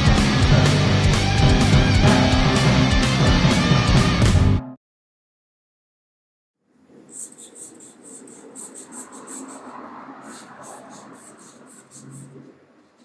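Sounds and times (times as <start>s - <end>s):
chalk scratching on a wall: 7.1s - 12.4s.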